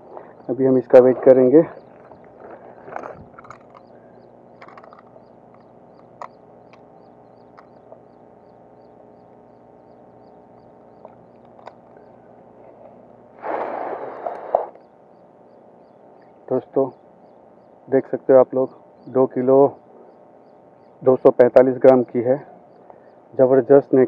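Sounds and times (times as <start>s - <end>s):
small high chirp: 1.3s - 12.3s
faint clicks: 1.9s - 8.6s.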